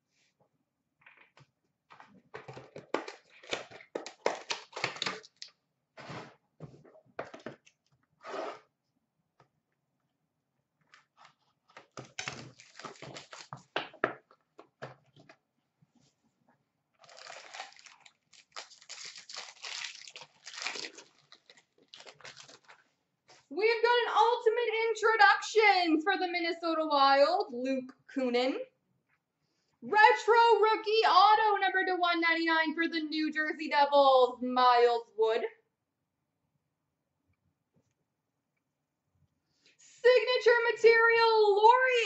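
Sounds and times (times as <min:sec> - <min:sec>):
foil wrapper tearing and crumpling: 0:03.1 - 0:05.5, 0:11.8 - 0:13.7, 0:17.0 - 0:22.8.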